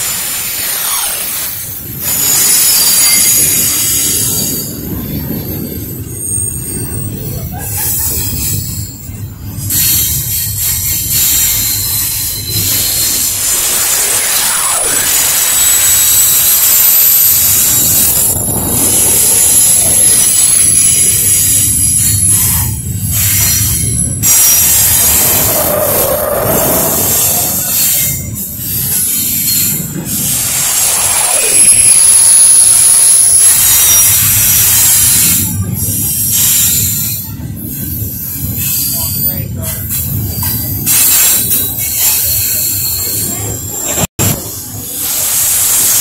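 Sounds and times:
train wheels rumbling on rail: 0:00.0 - 0:46.0
high-pitched wheel squeal: 0:05.3 - 0:37.2.

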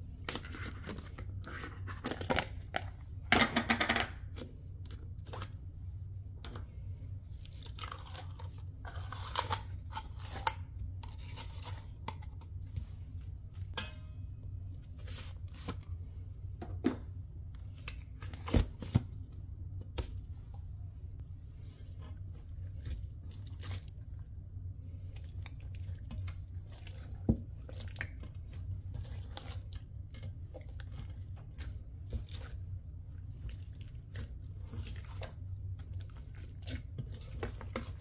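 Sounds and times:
steady low hum: 0:00.0 - 0:38.0
slime squelching and crackling: 0:07.2 - 0:12.7, 0:21.8 - 0:38.0.

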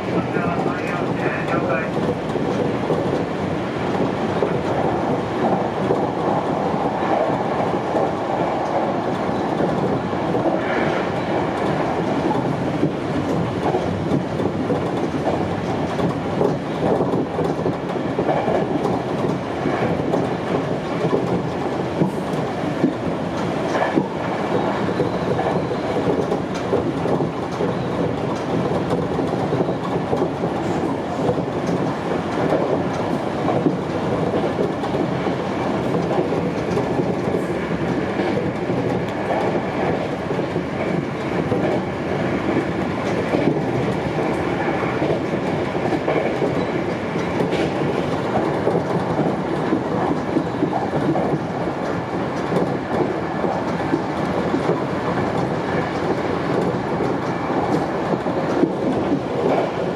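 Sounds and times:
clacks over rail joints: 0:00.0 - 0:59.9
train wheels rumbling on rail: 0:00.0 - 0:59.9.

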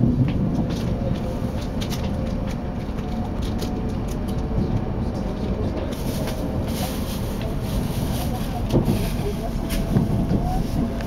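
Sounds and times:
train rumble inside cabin: 0:00.0 - 0:11.0.

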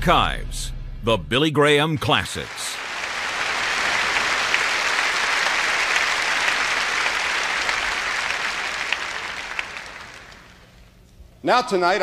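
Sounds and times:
audience applauding: 0:01.9 - 0:10.9.

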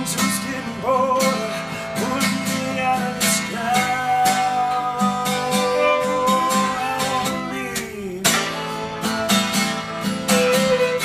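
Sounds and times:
man singing: 0:00.0 - 0:09.1
acoustic guitar strumming: 0:00.0 - 0:11.0
fiddle playing: 0:03.8 - 0:07.6, 0:08.8 - 0:11.0.

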